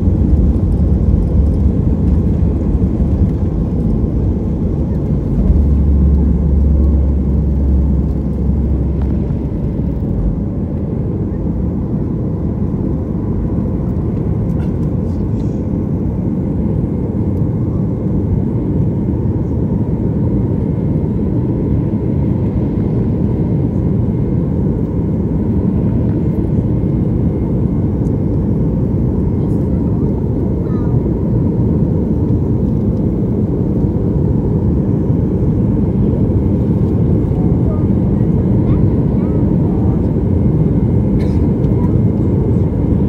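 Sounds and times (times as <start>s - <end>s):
wheels rumbling on runway: 0.0s - 15.6s
jet engines roaring: 0.0s - 43.0s.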